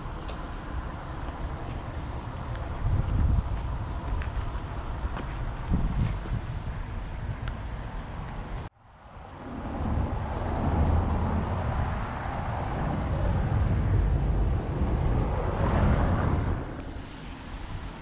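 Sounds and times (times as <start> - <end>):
road noise: 0.0 - 18.0
wind on microphone: 1.5 - 18.0.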